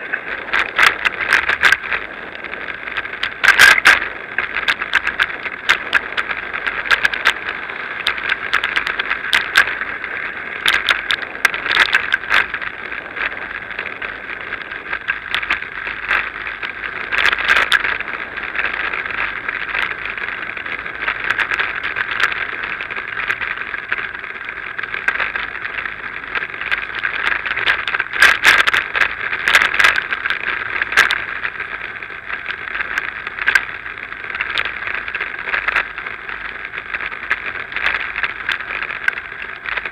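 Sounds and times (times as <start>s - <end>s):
bike rattling over bumps: 0.0s - 39.9s.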